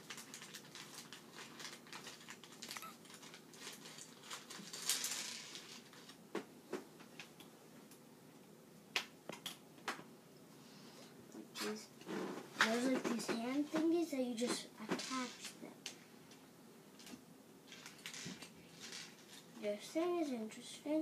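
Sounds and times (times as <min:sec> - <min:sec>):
rustling scrape: 0:12.1 - 0:13.6, 0:14.9 - 0:15.6, 0:17.7 - 0:19.6.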